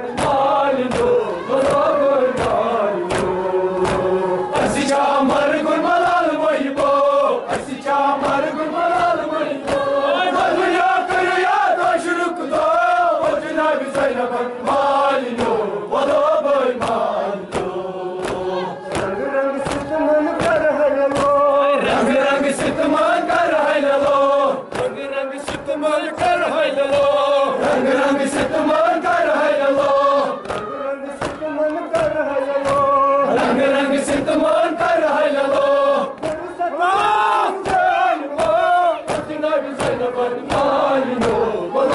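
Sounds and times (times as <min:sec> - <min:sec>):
crowd of men chanting: 0:00.0 - 0:41.9
chest-beating slaps: 0:00.1 - 0:05.5, 0:06.1 - 0:16.1, 0:16.7 - 0:28.7, 0:29.7 - 0:34.6, 0:35.5 - 0:41.9.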